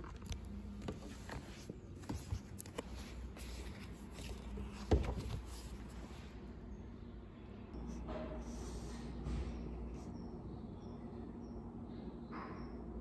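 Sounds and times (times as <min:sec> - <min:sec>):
paper rustling: 0:00.0 - 0:06.1.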